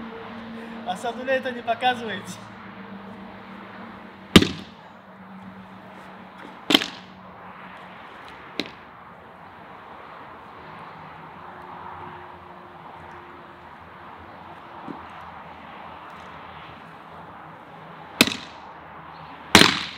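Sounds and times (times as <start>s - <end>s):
hatchet chopping wood: 4.4s - 4.8s, 6.7s - 7.1s, 8.6s - 8.8s, 18.2s - 18.6s, 19.6s - 19.9s.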